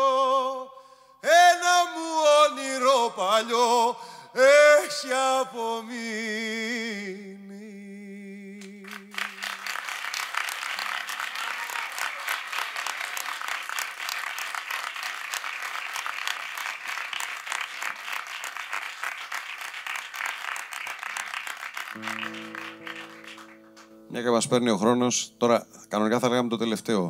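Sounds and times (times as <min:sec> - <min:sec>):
audience applauding: 0:08.8 - 0:24.1.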